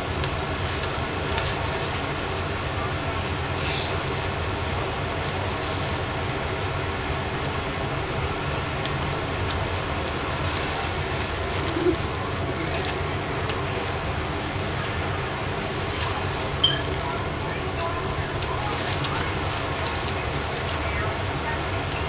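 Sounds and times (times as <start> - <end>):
mechanical hum with low rumble: 0.0 - 22.0.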